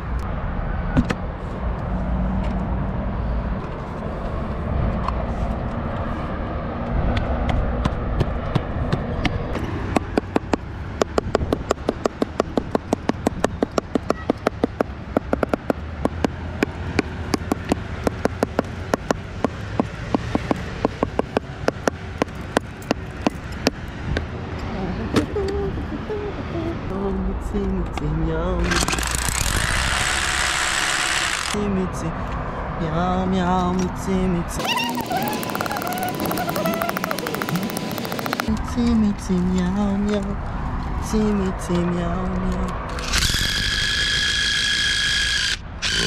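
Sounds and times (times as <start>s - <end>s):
distant city traffic rumble: 0.0s - 46.0s
rapid even clicking: 10.0s - 23.8s, 34.6s - 38.6s.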